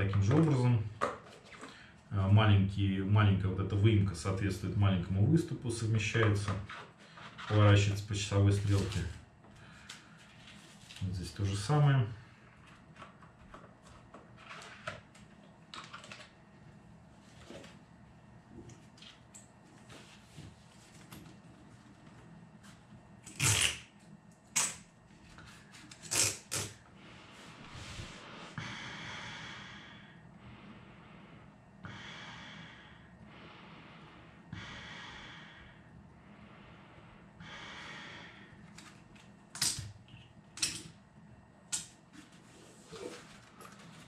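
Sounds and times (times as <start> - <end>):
breathing through respirator mask: 27.0 - 38.7.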